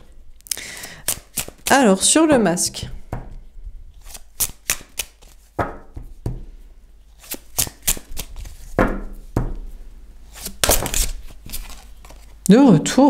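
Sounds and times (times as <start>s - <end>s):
cards riffling: 0.6s - 1.7s, 4.0s - 5.5s, 7.1s - 8.8s, 10.3s - 12.4s
cards slapping: 0.8s - 1.8s, 4.0s - 6.4s, 7.2s - 9.7s, 10.3s - 12.4s.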